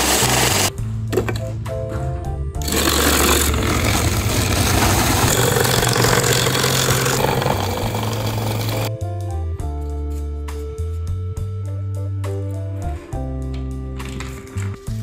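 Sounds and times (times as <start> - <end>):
ice shaver grinding ice: 0.0 - 0.7, 2.6 - 8.9.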